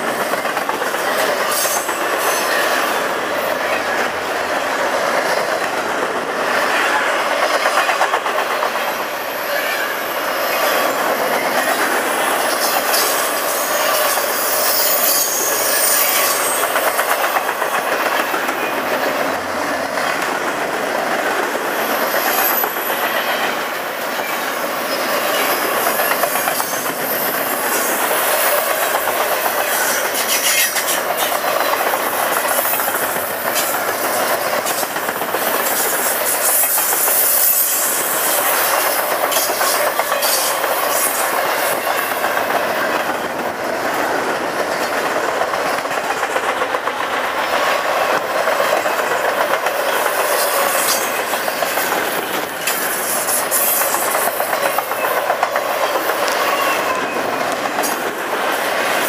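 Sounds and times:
wheels clicking over rail joints: 0.0s - 9.0s, 10.7s - 59.0s
train wheels rumbling on rails: 0.0s - 59.0s
high wheel squeals: 12.4s - 16.8s, 24.2s - 28.6s, 35.7s - 42.2s.

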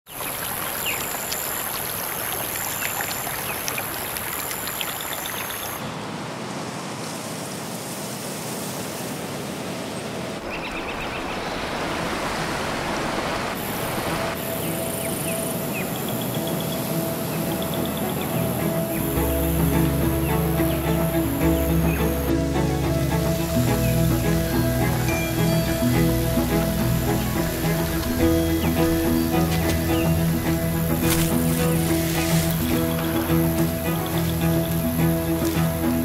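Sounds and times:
steady rushing noise: 9.6s - 36.0s
high even whine: 13.5s - 36.0s.

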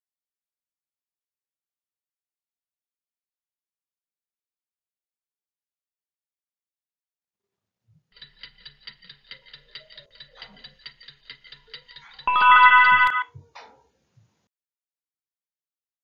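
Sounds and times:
rapid clock ticking: 8.1s - 13.2s
alarm bell ringing: 12.1s - 13.3s.

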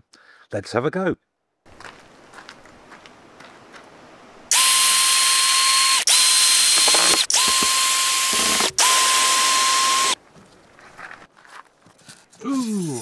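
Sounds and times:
cordless drill motor whine: 4.5s - 10.2s.

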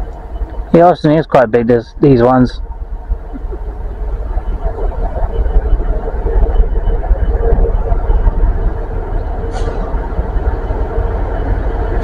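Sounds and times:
diesel locomotive engine rumble: 0.0s - 12.0s.

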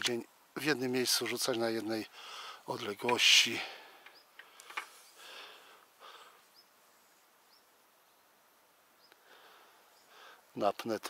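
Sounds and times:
faint high bird chirps: 6.4s - 9.3s.

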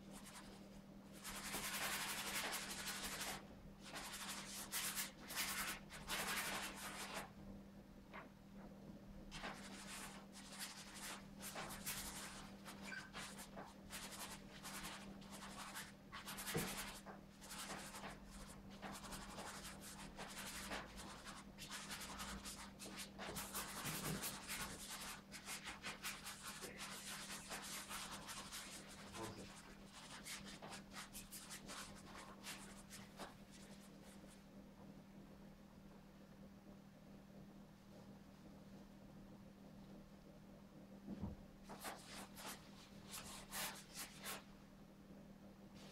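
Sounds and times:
faint steady hum: 0.0s - 45.9s
paintbrush scratching on canvas: 1.2s - 7.3s, 9.3s - 34.4s, 41.7s - 44.5s.

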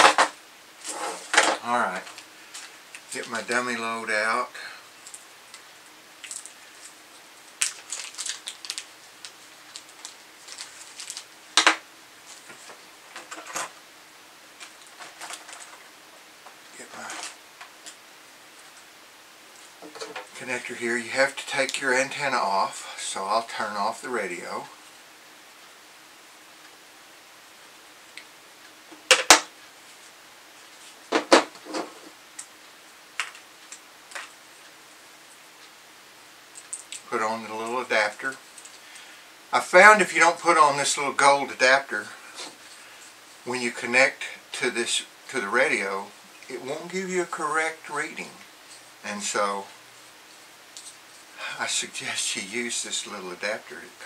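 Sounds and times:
plastic packaging crinkling: 6.2s - 13.7s, 14.6s - 15.8s, 33.2s - 34.4s.

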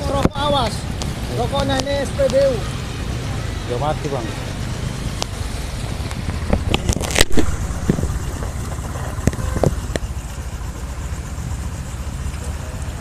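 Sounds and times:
low rumble of vehicles: 0.0s - 13.0s
sharp clicks: 0.2s - 2.5s.

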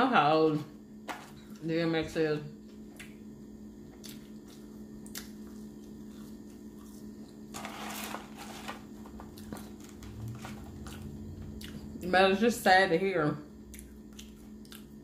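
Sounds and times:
low hum: 1.3s - 15.0s
chewing fries: 3.8s - 12.1s, 13.6s - 15.0s.

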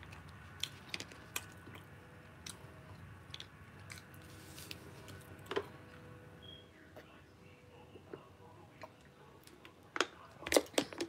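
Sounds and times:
person chewing food: 0.0s - 5.3s.

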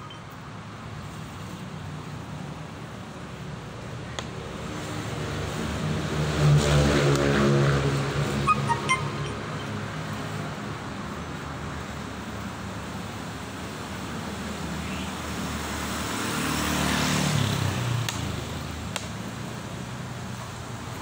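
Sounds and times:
road traffic noise: 0.0s - 21.0s
motor vehicle passing close: 4.6s - 10.5s.

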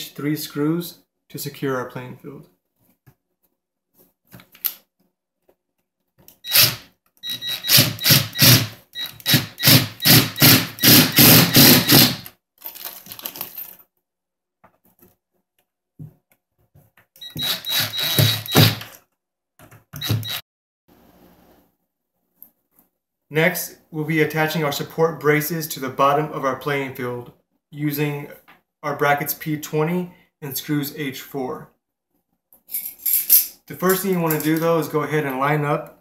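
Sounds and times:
power drill whirring: 6.4s - 12.3s, 17.2s - 18.9s, 20.0s - 20.4s.

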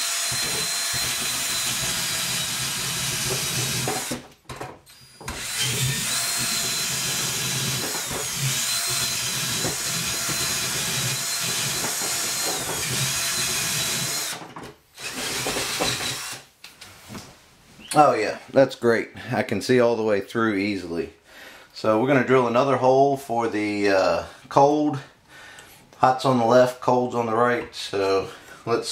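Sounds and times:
cordless drill drilling wood: 0.0s - 4.3s, 4.9s - 16.5s.

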